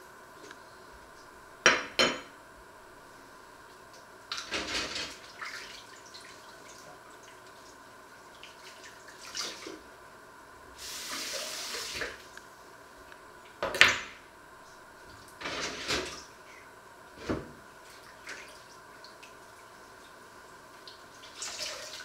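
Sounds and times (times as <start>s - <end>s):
dishes clinking in sink: 1.7s - 2.3s.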